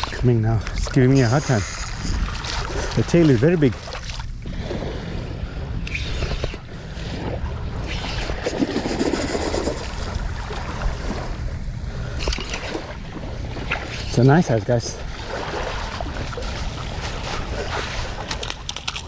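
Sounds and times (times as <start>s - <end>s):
small waves lapping: 0.0s - 19.0s
wind buffeting microphone: 0.0s - 19.0s.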